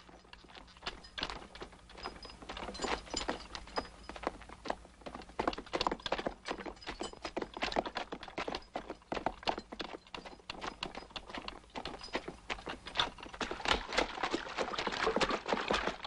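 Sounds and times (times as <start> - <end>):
horse hooves clip-clopping: 0.0 - 16.0
wooden wagon knocking and rattling: 0.0 - 16.0.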